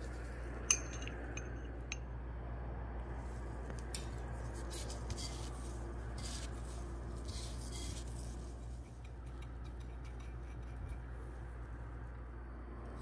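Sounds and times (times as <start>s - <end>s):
steady low hum: 0.0s - 13.0s
dry crumbs rustling: 3.2s - 10.1s.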